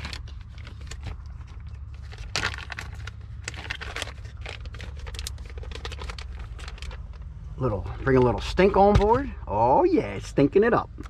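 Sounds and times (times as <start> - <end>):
plastic packaging crinkling: 0.0 - 7.3
low hum: 0.0 - 11.0.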